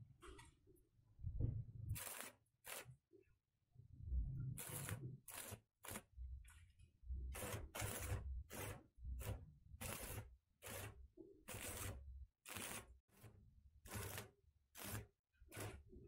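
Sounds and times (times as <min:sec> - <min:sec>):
arc welder crackling: 0:01.9 - 0:03.0, 0:04.5 - 0:06.2, 0:07.3 - 0:16.0.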